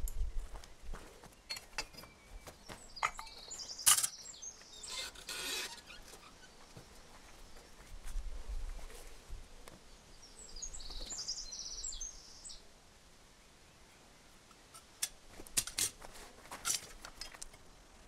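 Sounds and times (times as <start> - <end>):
birds chirping faintly: 0.0 - 12.7
clinks and knocks of metal crucible: 3.0 - 4.2.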